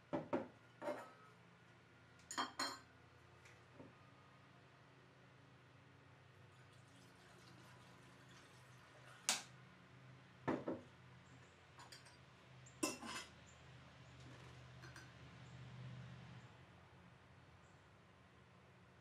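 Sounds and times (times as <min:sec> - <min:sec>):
glass jar clinking on table: 0:02.3 - 0:02.8.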